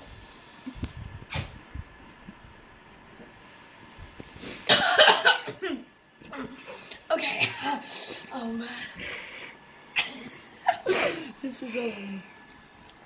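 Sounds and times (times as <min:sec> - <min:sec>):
boy coughing: 0:04.7 - 0:05.8.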